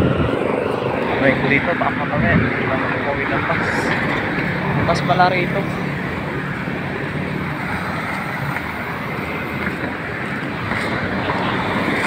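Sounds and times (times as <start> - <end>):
busy road traffic: 0.0 - 12.0.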